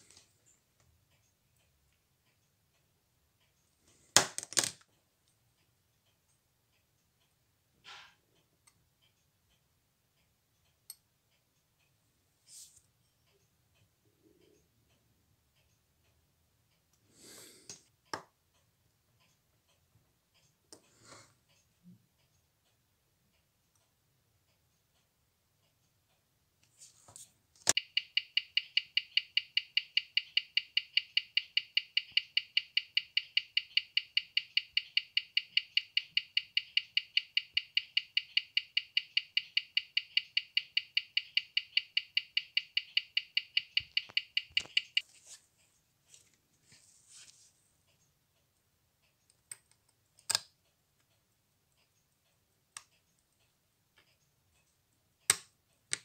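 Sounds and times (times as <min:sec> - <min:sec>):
mechanical watch ticking: 0:08.4 - 0:12.0, 0:27.7 - 0:45.0.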